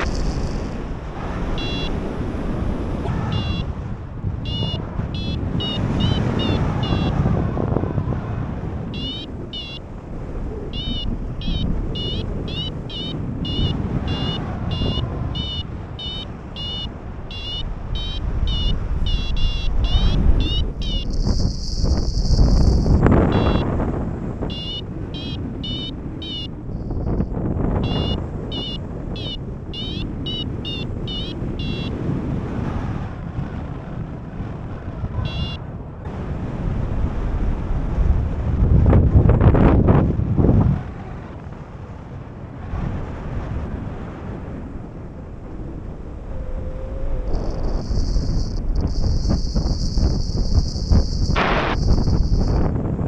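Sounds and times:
wind rushing over microphone: 0.0s - 53.0s
rising electronic chirps: 1.6s - 2.0s, 3.3s - 3.7s, 4.5s - 7.1s, 9.0s - 9.8s, 10.8s - 23.6s, 24.5s - 26.5s, 47.3s - 52.6s.

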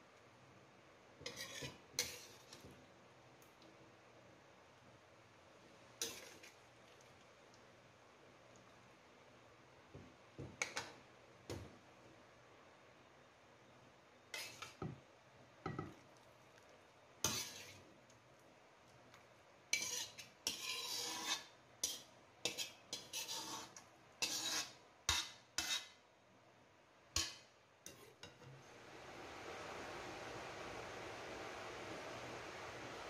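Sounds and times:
metal ladle scraping a wok: 1.2s - 2.6s, 6.0s - 6.6s, 14.3s - 14.8s, 17.2s - 17.8s, 19.7s - 26.0s.

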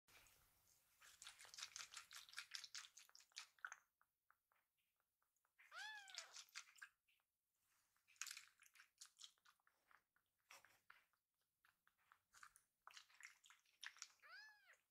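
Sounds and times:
kitten meowing: 5.7s - 6.4s, 14.2s - 14.8s.

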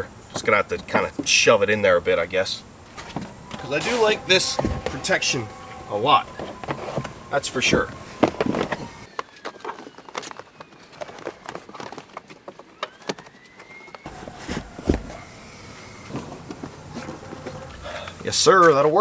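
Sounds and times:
loud thump: 3.0s - 5.0s.

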